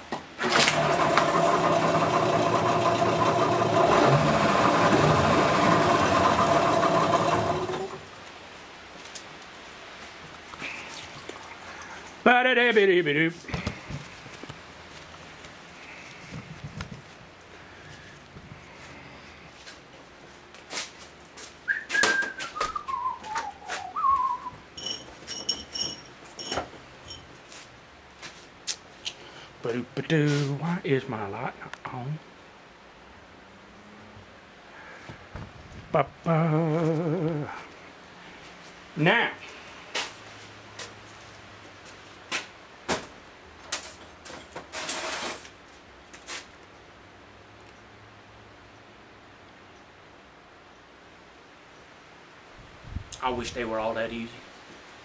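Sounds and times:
man whistling: 0:21.7 - 0:24.6.

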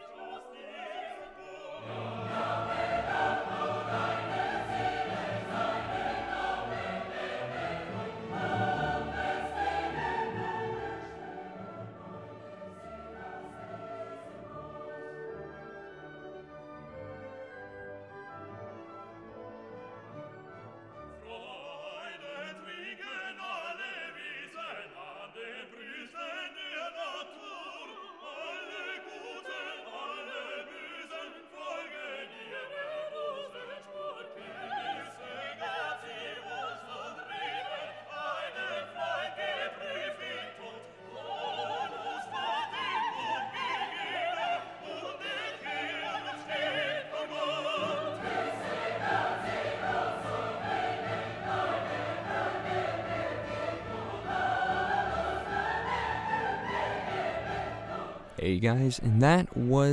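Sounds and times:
operatic singing over orchestra: 0:00.0 - 0:59.9.

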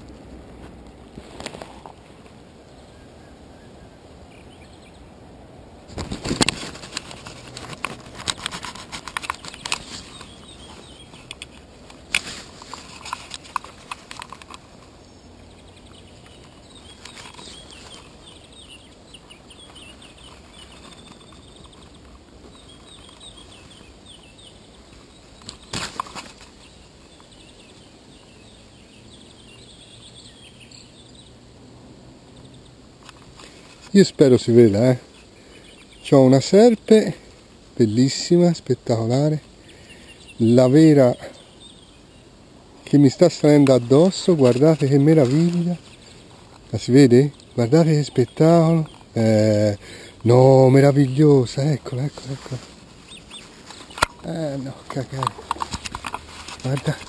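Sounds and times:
outdoor hiss: 0:00.0 - 0:57.0
camera handling knocks and rustles: 0:05.9 - 0:14.9, 0:54.9 - 0:57.0.

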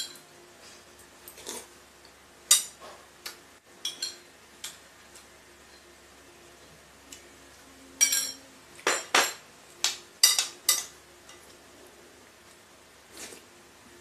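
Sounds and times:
spoon clinking against ceramic bowl: 0:08.0 - 0:09.4.

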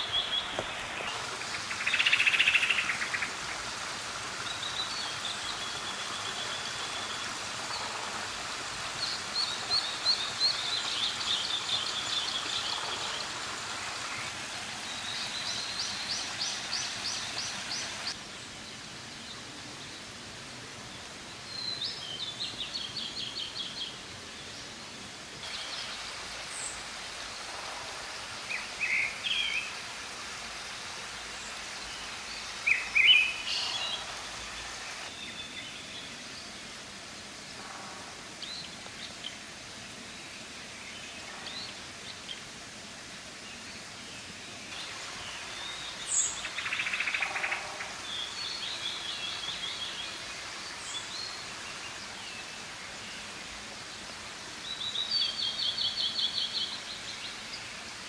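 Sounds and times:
mountain stream rushing: 0:00.0 - 0:58.0.

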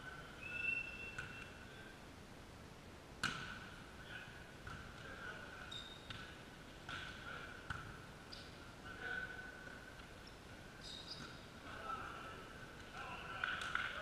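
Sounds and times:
volleyball hits echoing: 0:03.2 - 0:03.8, 0:04.6 - 0:05.1, 0:06.0 - 0:08.0
trainers squeaking on court: 0:05.6 - 0:06.4, 0:10.2 - 0:11.4.

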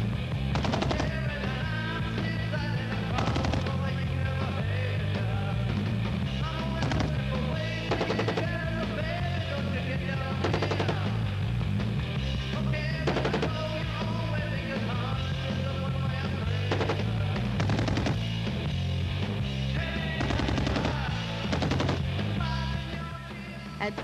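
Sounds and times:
rock music: 0:00.0 - 0:24.0
rifle automatic bursts: 0:00.5 - 0:01.6, 0:03.2 - 0:03.9, 0:06.8 - 0:09.0, 0:10.4 - 0:11.2, 0:13.0 - 0:13.8, 0:16.6 - 0:18.4, 0:20.2 - 0:22.3.

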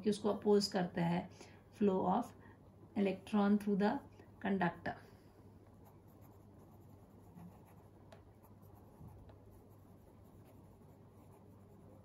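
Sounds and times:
low room hum: 0:00.0 - 0:12.0
pen scratching while writing: 0:05.9 - 0:12.0.

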